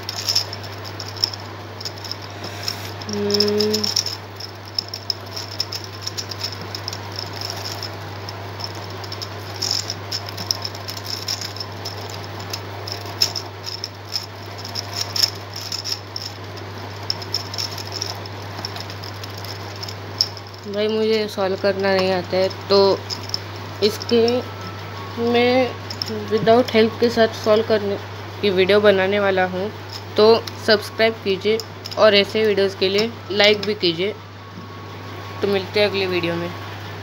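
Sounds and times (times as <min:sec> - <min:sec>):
plastic puzzle clicking: 0:00.0 - 0:20.4
steady low hum: 0:00.0 - 0:37.0
person humming: 0:03.1 - 0:04.0.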